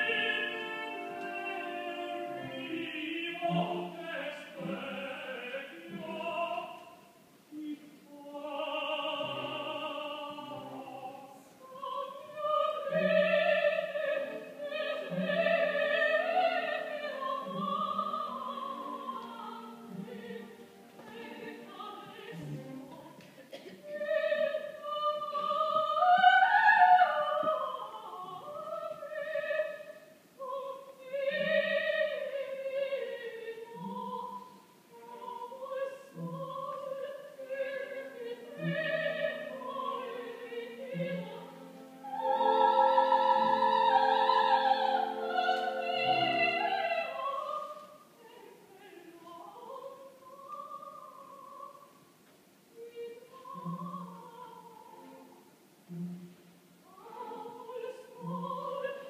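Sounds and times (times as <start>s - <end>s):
orchestral accompaniment: 0.0s - 6.6s
operatic duet singing: 0.0s - 52.0s, 52.8s - 55.4s, 56.8s - 59.0s.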